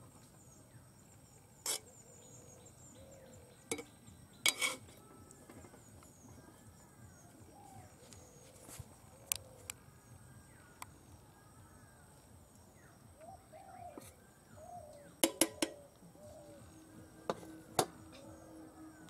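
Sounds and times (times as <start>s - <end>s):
birds calling faintly: 0.0s - 19.0s
metal spoon clinking on pot: 4.5s - 4.9s, 15.2s - 15.8s.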